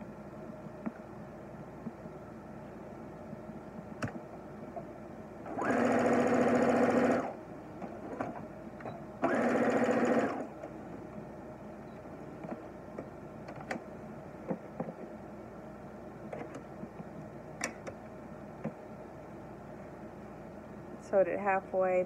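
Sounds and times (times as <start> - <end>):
sewing machine stitching: 5.5 - 7.4, 9.2 - 10.5.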